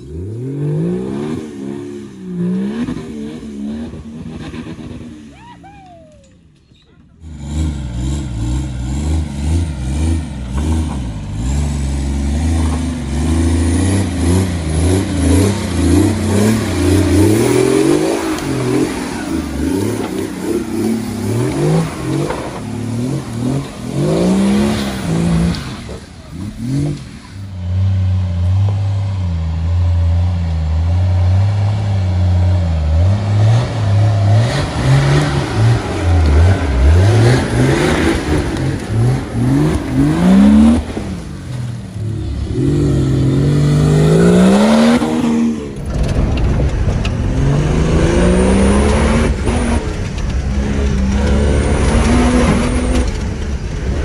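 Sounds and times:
diesel engine revving hard: 0.0s - 5.3s, 7.2s - 54.0s.

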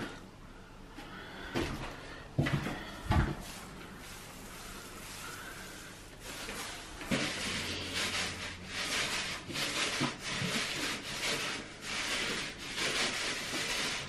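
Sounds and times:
paint roller sticky hiss: 3.4s - 14.0s.

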